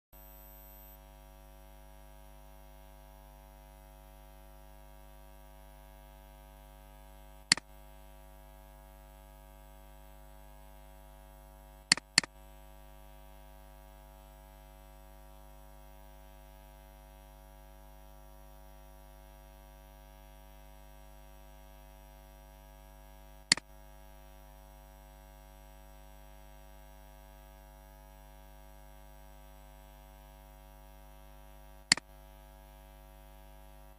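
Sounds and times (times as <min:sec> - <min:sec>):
electrical mains hum: 0:00.2 - 0:16.2
computer mouse clicks: 0:11.9 - 0:12.3.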